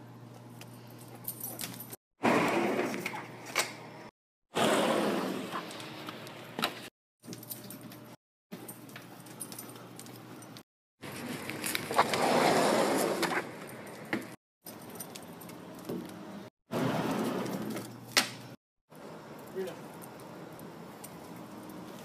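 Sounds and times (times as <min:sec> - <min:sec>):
collar tags jingling: 0:07.3 - 0:10.6, 0:14.6 - 0:15.8, 0:19.3 - 0:22.0.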